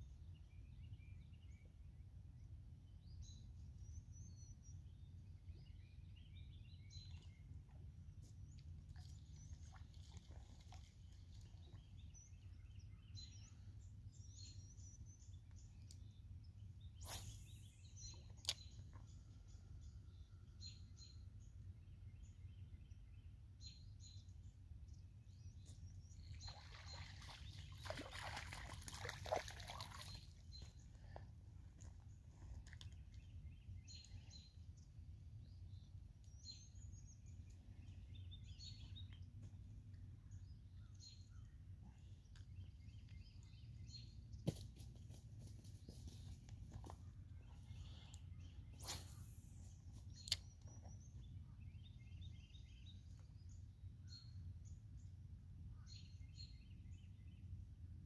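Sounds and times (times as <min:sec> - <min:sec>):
faint bird chirps: 0:46.8 - 0:54.5.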